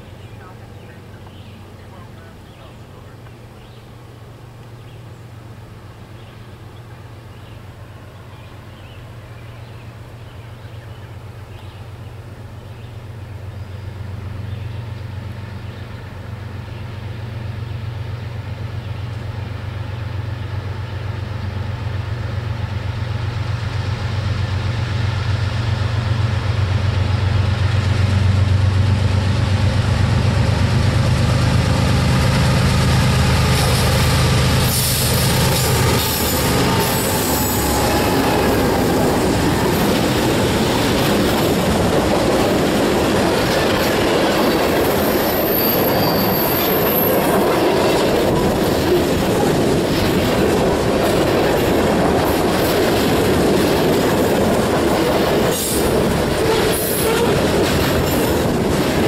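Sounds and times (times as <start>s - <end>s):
diesel locomotive engine drone: 0.0s - 59.0s
train wheels clattering on rail: 25.8s - 59.0s.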